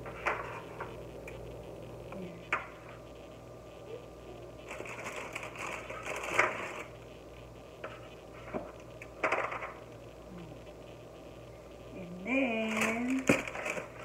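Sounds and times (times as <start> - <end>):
crackers rustling: 4.5 - 7.1, 7.8 - 10.0, 12.6 - 14.0.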